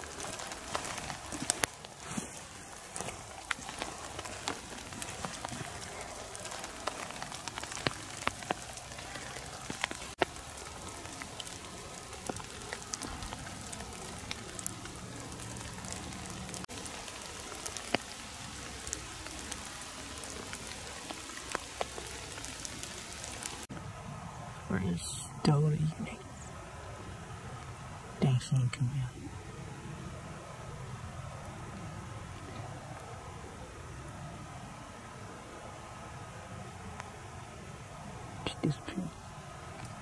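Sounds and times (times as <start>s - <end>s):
raindrops ticking: 0.0s - 23.7s
light rain falling: 0.0s - 40.0s.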